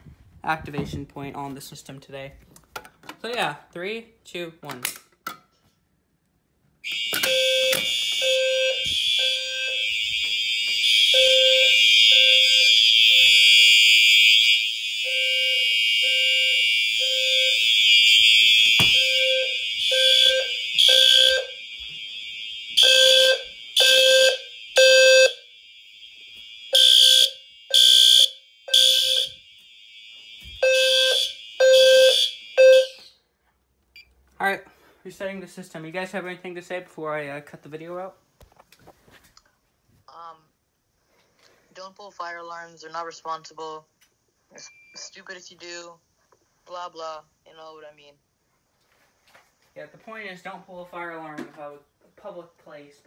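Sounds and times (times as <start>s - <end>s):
low-frequency alarm sounder pulsing: 6.8s - 33.2s
fire alarm horns blaring: 6.8s - 33.3s.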